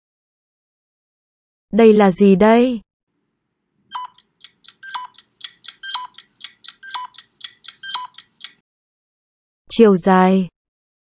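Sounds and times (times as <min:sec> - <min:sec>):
electronic beep: 0:03.9 - 0:04.2, 0:04.8 - 0:05.2, 0:05.8 - 0:08.2
short electronic ticks: 0:03.9 - 0:08.6.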